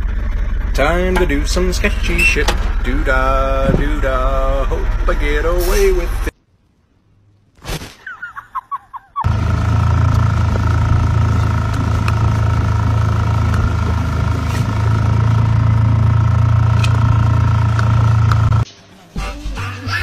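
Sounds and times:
boat engine droning: 0.0s - 6.3s, 9.2s - 18.7s.

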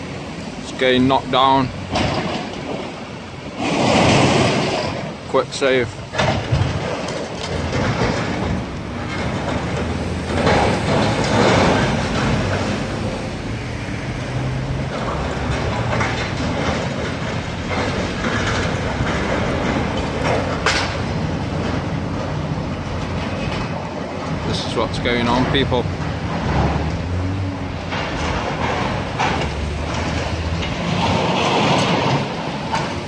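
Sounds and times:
excavator diesel engine: 0.0s - 33.0s
metal crunching and scraping: 0.6s - 33.0s.

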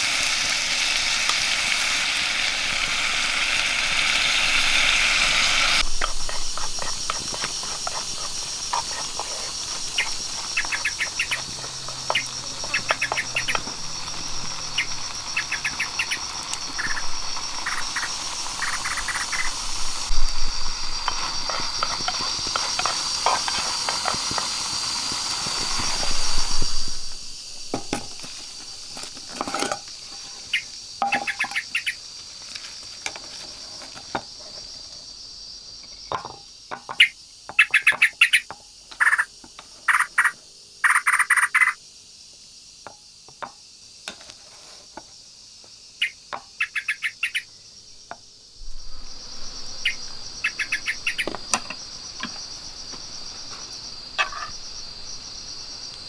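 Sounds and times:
frogs croaking: 0.0s - 32.4s, 34.1s - 41.9s, 45.9s - 56.0s
insects chorus: 0.0s - 56.0s
taps and knocks: 36.1s - 37.6s.

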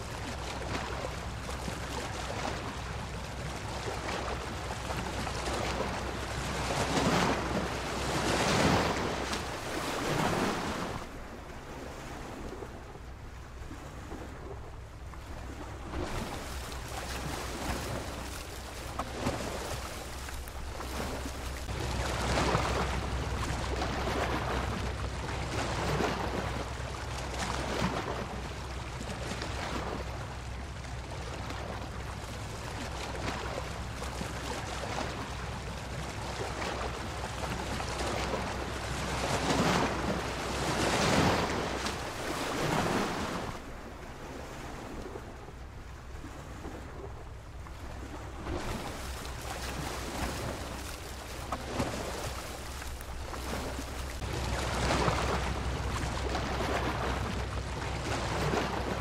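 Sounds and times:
ocean surf breaking: 0.0s - 12.9s, 13.6s - 59.0s.

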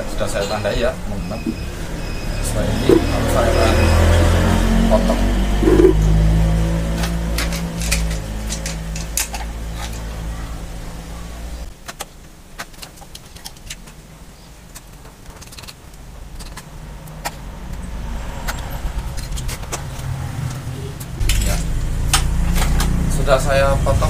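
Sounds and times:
low engine-like hum: 0.9s - 11.7s.

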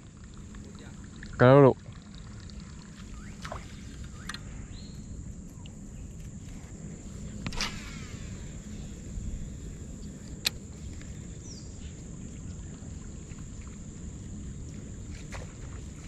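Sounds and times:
fishing reel spool whirring: 0.0s - 5.2s, 6.8s - 11.8s
outdoor background noise: 0.0s - 16.0s.

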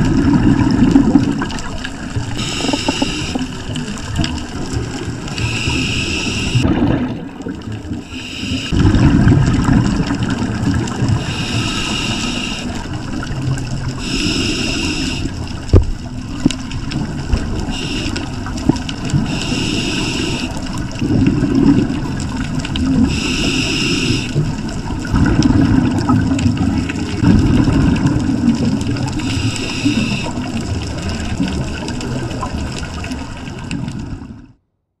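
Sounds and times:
gurgling exhaled bubbles: 0.0s - 34.5s
regulator hiss on inhale: 2.4s - 3.6s, 5.3s - 6.6s, 8.0s - 8.8s, 11.1s - 12.9s, 14.0s - 15.5s, 17.6s - 18.4s, 19.2s - 20.7s, 23.0s - 24.4s, 29.1s - 30.5s.

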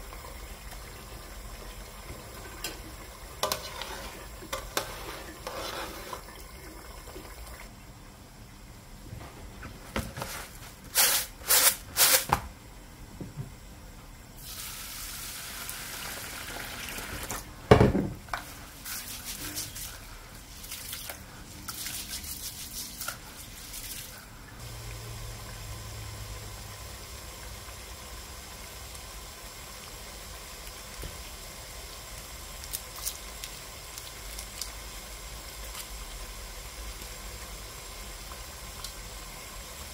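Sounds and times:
low steady hiss: 0.0s - 39.9s
rice washed in bowl of water: 18.4s - 29.8s.

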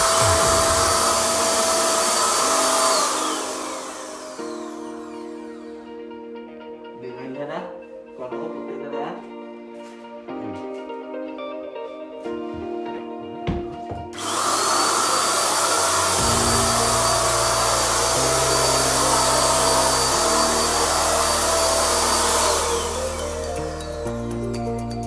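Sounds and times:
paint spray gun hissing: 0.0s - 5.6s, 14.2s - 24.2s
spray gun motor whine: 0.0s - 6.2s, 14.2s - 24.4s.

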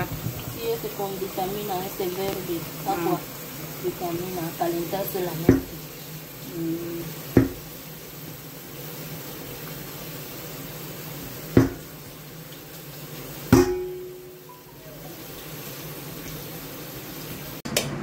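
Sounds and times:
tap water running into pot: 0.0s - 17.6s
metal pot knocking against sink: 5.4s - 5.8s, 7.3s - 7.7s, 11.5s - 11.9s, 13.5s - 14.4s.

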